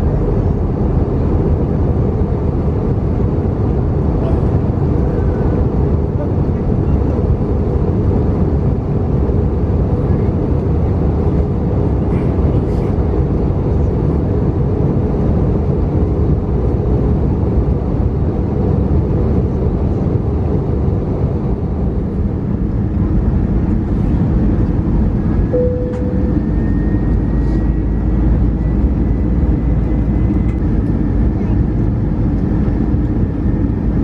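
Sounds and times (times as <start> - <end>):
airflow over fuselage: 0.0 - 34.0
jet engine cabin drone: 0.0 - 34.0
faint high whine: 25.4 - 31.6
short clear tone: 25.5 - 27.7.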